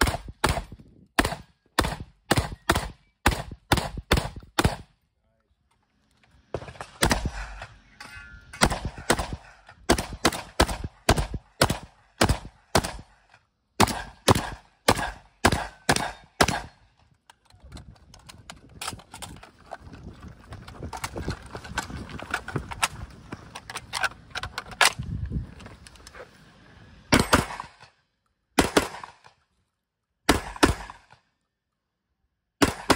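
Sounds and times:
shotgun firing rapidly: 0.0 - 4.9, 7.0 - 7.4, 8.6 - 13.1, 13.8 - 16.7, 28.6 - 29.2, 30.3 - 31.1, 32.6 - 32.9.

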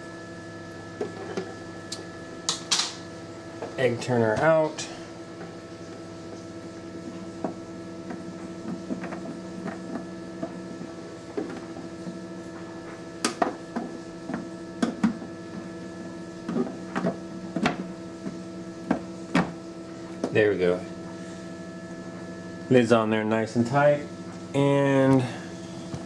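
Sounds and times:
egg incubator humming: 0.0 - 26.0.

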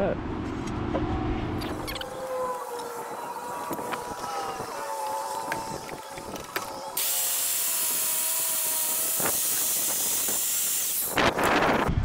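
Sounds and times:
circular saw cutting wood: 2.0 - 11.8.

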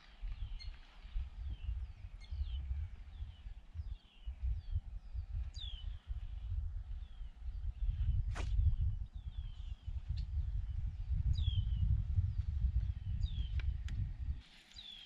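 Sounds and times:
small birds chirping: 0.0 - 15.0
wind on microphone: 0.0 - 15.0
short swish: 8.3 - 8.6.

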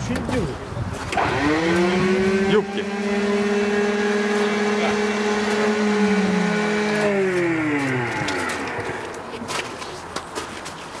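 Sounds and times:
radial aircraft engine running: 1.2 - 9.3.

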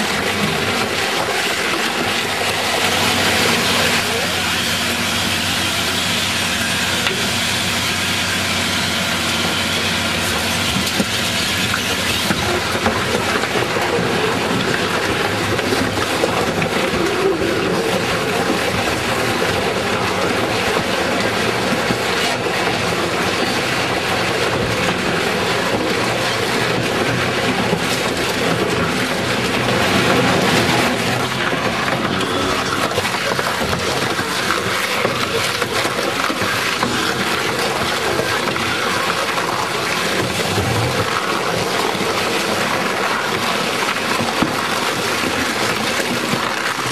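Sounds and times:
shredder mechanical rumble: 0.0 - 46.9.

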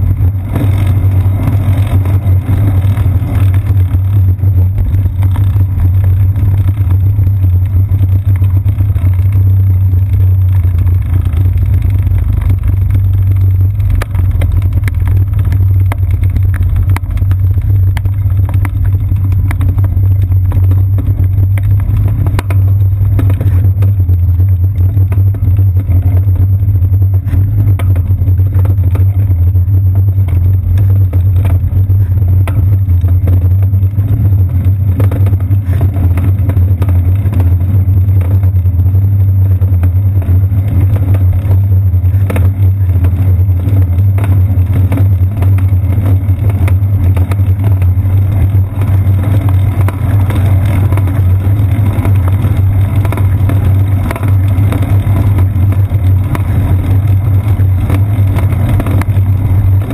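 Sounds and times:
bicycle tyre rumble: 0.0 - 59.9
small knocks from bumps: 1.8 - 26.5.

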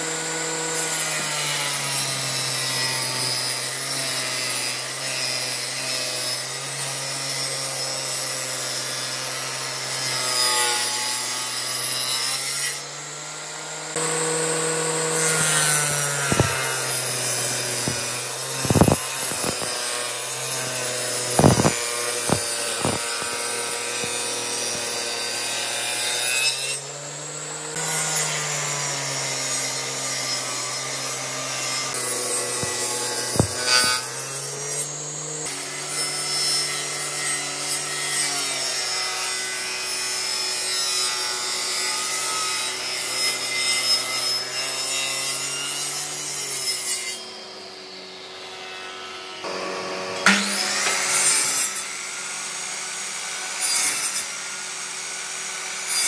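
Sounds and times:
power tool motor hum: 0.0 - 38.8
tool grinding wood: 0.0 - 56.0
sharp knocks: 16.2 - 16.8, 17.8 - 19.7, 21.3 - 24.1, 32.6 - 34.0.

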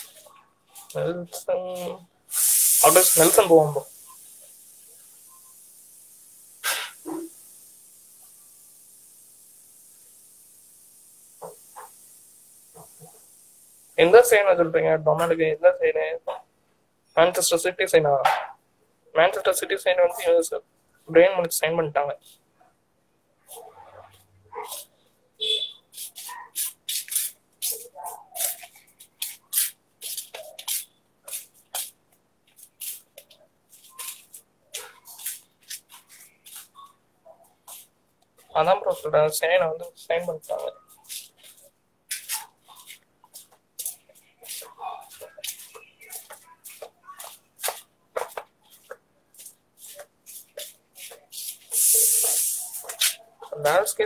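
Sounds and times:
hiss: 2.3 - 14.2, 50.6 - 53.2.

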